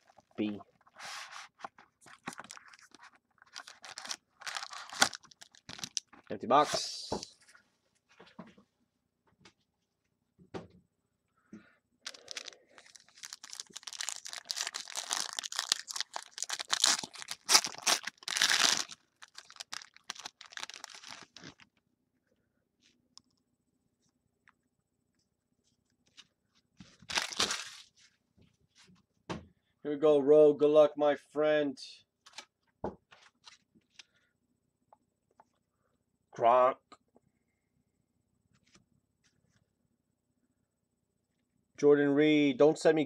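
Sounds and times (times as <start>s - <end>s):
wrapper rustling: 0.0s - 6.3s, 12.0s - 21.6s, 26.9s - 28.0s
foil wrapper tearing and crackling: 1.6s - 6.1s, 12.1s - 21.6s, 27.0s - 27.9s.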